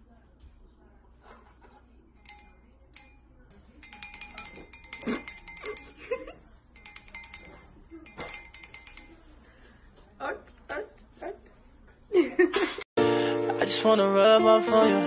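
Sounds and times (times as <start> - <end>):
small hand bell jangling: 3.8 - 9.2.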